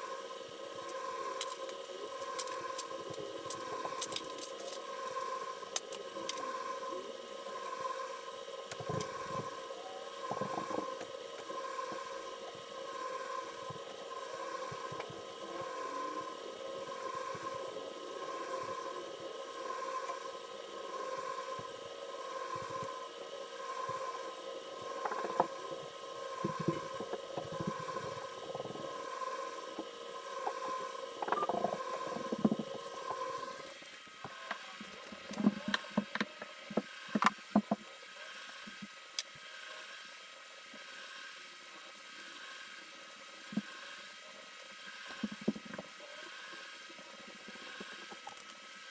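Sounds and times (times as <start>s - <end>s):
pulsing two-tone hum: 0.0s - 48.9s.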